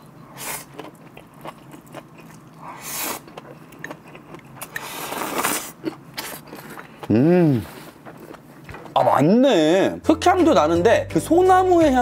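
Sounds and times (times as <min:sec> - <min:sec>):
biting and chewing mushroom: 0:00.4 - 0:09.3.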